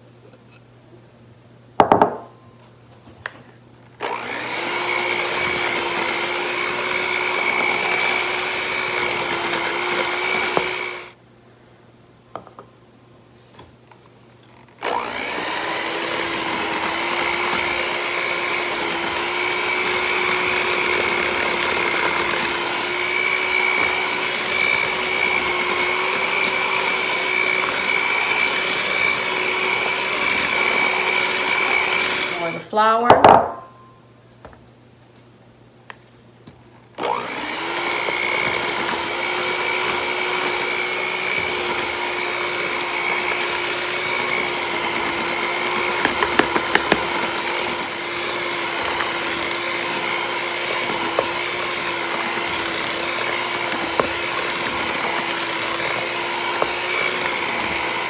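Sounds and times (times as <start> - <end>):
electric hand mixer whirring: 4.0 - 11.2, 14.6 - 32.7, 37.0 - 58.0.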